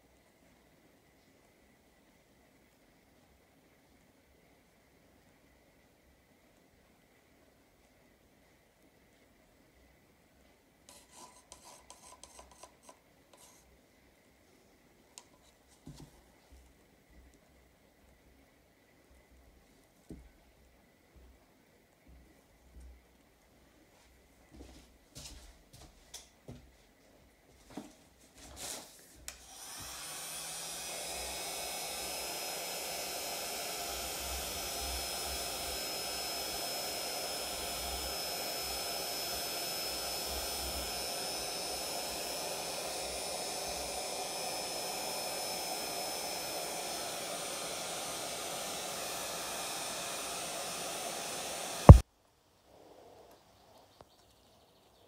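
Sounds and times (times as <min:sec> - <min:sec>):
heat gun blowing with high whine: 0:10.9 - 0:13.6, 0:29.3 - 0:52.0.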